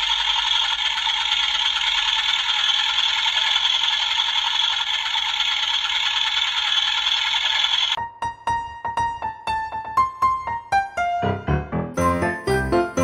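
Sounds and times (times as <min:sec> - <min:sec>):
toy rattling tinny: 0:00.0 - 0:08.0.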